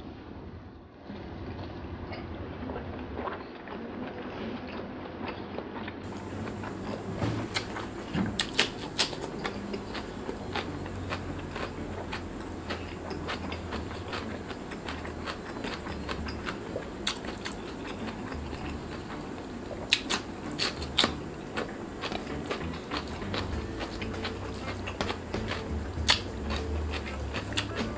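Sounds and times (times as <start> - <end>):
person chewing with wet mouth clicks: 6.0 - 27.9.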